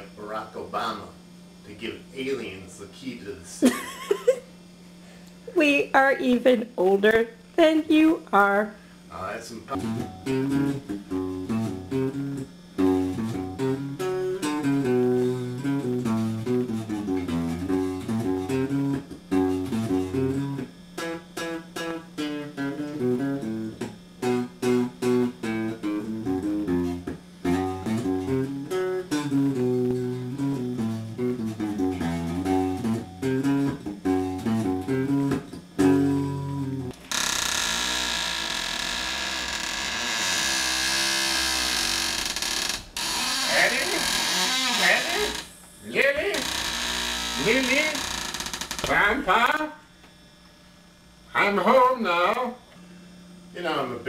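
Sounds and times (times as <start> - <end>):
steady low hum: 0.0 - 54.0
electric guitar riff: 9.7 - 45.5.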